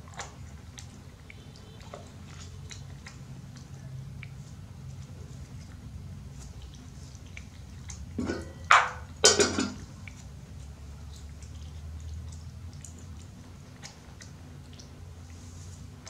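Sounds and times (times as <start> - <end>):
monkey chewing fruit: 0.0 - 9.1, 9.8 - 16.0
rustling or scraping noises: 15.3 - 16.0.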